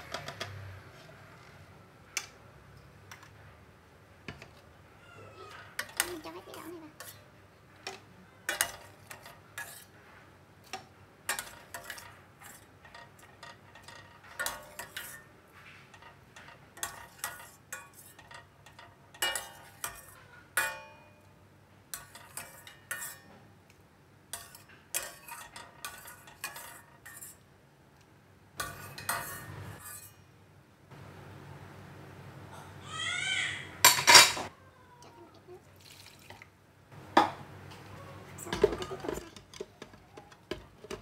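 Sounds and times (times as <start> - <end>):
metal ladle clinking against pot: 10.7 - 15.3, 15.9 - 21.2, 21.9 - 23.4, 28.6 - 30.2.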